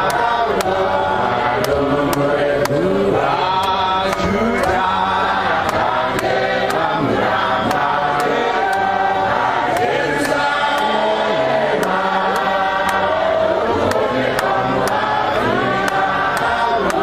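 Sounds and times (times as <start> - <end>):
sharp click keeping time: 0.0 - 17.0
voices chanting a hymn: 0.0 - 17.0.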